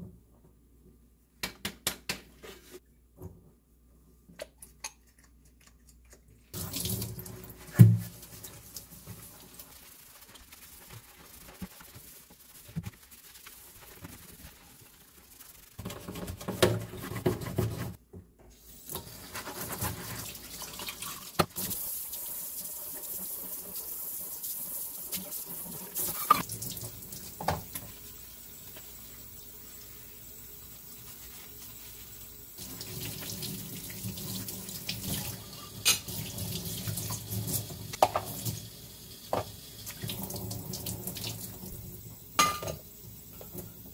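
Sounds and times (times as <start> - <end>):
gloved hands scrubbing sink: 6.5 - 18.0, 19.0 - 21.7, 29.8 - 35.2
water spraying into metal sink: 6.6 - 18.0.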